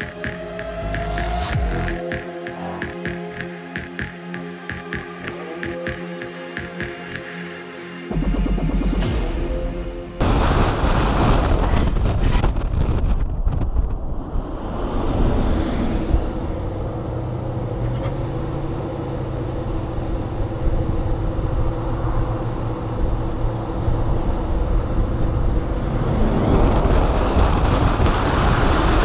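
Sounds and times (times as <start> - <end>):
steady low drone: 0.0 - 12.1, 13.2 - 29.0
tyre and wind rush: 10.2 - 17.1, 23.1 - 29.0.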